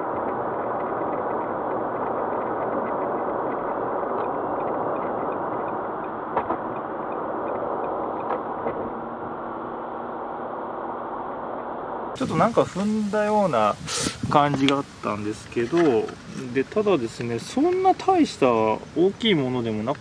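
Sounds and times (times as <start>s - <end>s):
road and tyre noise inside car: 0.0s - 12.2s.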